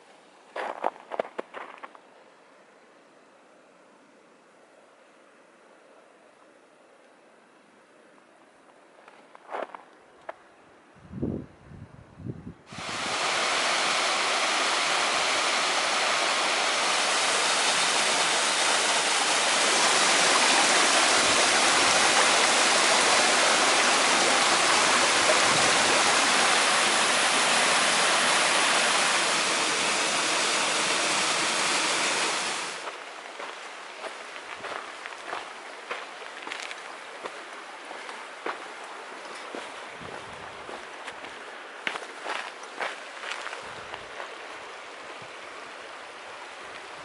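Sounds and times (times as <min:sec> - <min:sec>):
waterfall rushing over rocks: 0:12.7 - 0:35.6.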